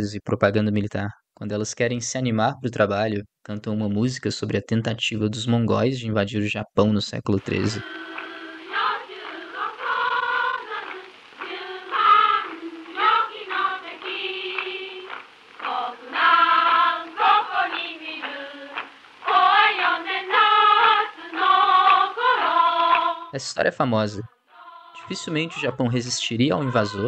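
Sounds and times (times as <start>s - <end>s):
group of women singing: 7.5s - 23.3s, 24.5s - 27.0s.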